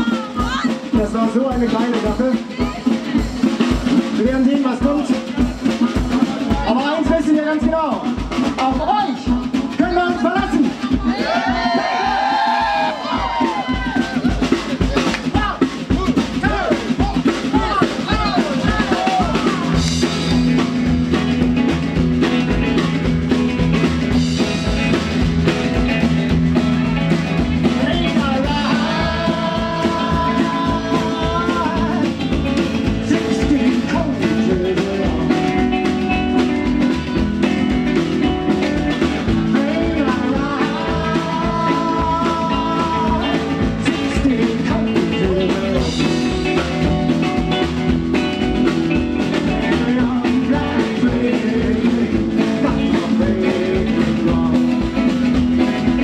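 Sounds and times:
man singing: 0.0 - 3.0, 26.8 - 56.0
drum kit: 0.0 - 56.0
electric guitar: 0.0 - 56.0
upright double bass: 0.0 - 56.0.

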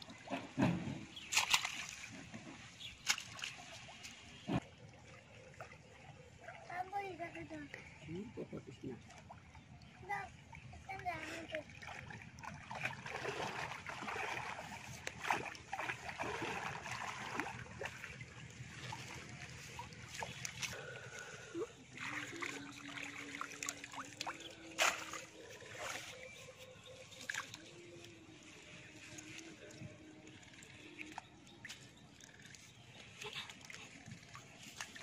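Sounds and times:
water sloshing and splashing: 0.0 - 35.0
sharp splash: 1.1 - 2.2, 3.0 - 4.3, 11.8 - 18.1, 22.0 - 26.2
water trickling from net: 1.1 - 35.0.

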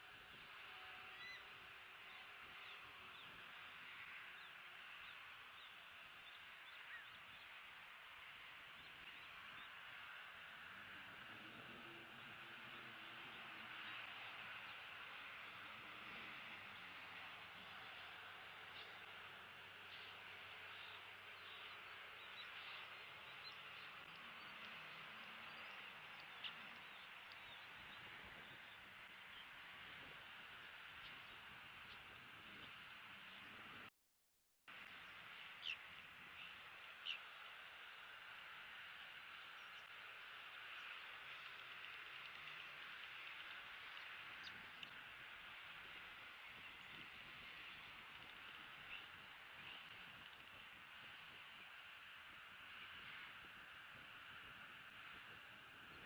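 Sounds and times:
faint bird chirps: 0.8 - 1.5
small birds chirping: 1.1 - 7.6, 19.8 - 33.6, 34.9 - 37.5.

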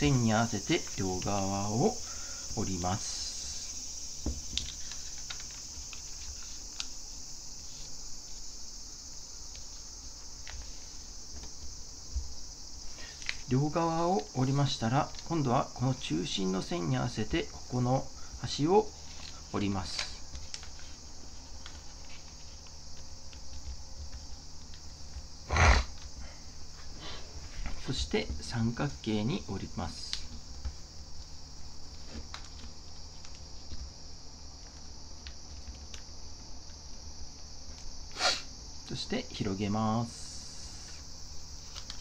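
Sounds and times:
steady high-pitched hiss: 0.0 - 42.0
paper rustle and thump: 4.2 - 6.9
paper folding clicks and taps: 4.2 - 7.0, 13.0 - 13.5, 14.1 - 15.4, 18.3 - 25.3, 29.9 - 33.9, 34.6 - 36.1, 41.6 - 42.0.

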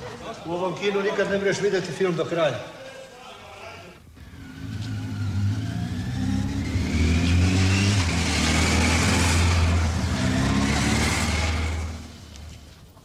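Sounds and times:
vehicle engine passing: 4.1 - 12.8.

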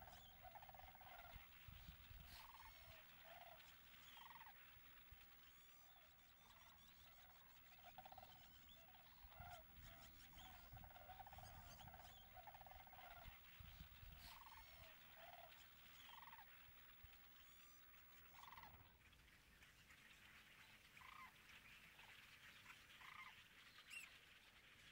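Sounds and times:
cranes rattling calls: 0.0 - 5.0, 7.8 - 18.9
blackbird flock chirping: 0.0 - 24.5.

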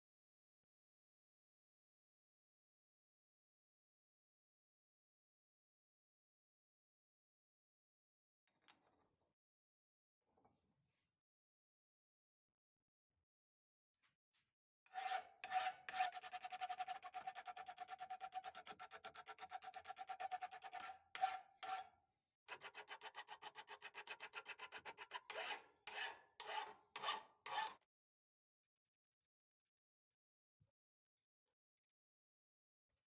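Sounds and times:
file scraping steel: 14.9 - 21.9, 22.5 - 27.8.

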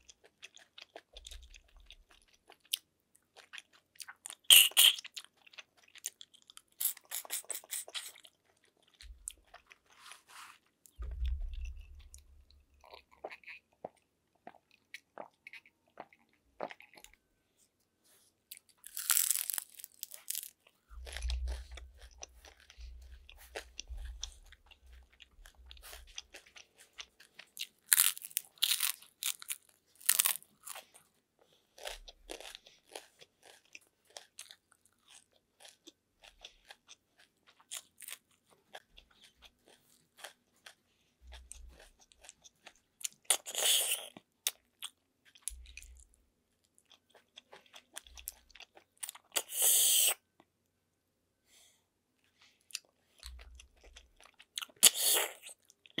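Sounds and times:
crunching and chewing: 0.0 - 17.2, 18.5 - 50.5, 52.2 - 56.0.

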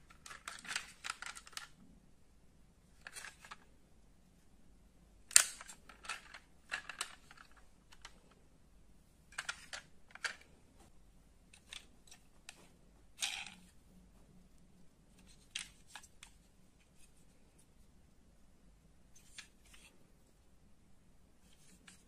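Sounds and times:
small metal and plastic parts clicking: 0.0 - 1.8, 5.3 - 8.4, 9.3 - 10.5, 11.5 - 12.6.

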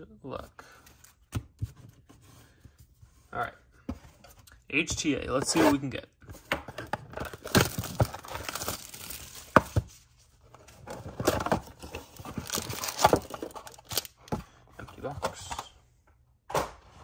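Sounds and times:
packaging tearing and crinkling: 7.2 - 9.5, 12.0 - 14.2.

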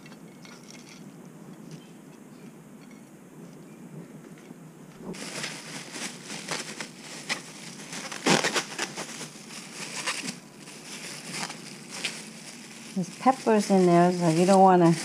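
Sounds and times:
plastic bag crinkling: 5.1 - 15.0.

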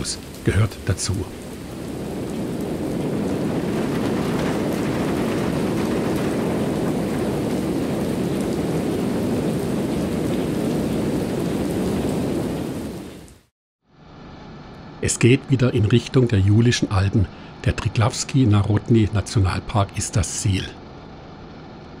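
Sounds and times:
heavy rain: 0.0 - 13.5
low rumble of thunder: 1.4 - 13.3.

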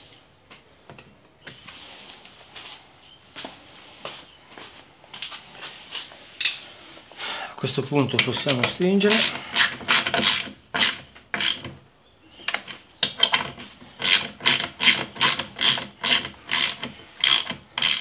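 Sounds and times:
ratchet wrench clicking: 9.1 - 11.6, 14.0 - 18.0.

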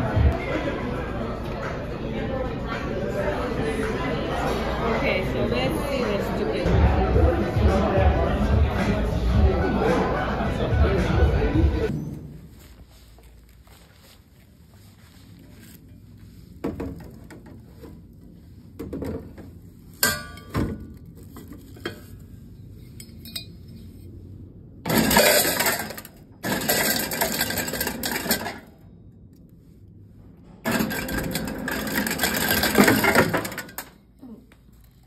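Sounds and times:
ice cubes clinking: 24.9 - 28.6, 30.7 - 33.7
ice rattling into bucket: 24.9 - 28.6, 30.7 - 33.8.

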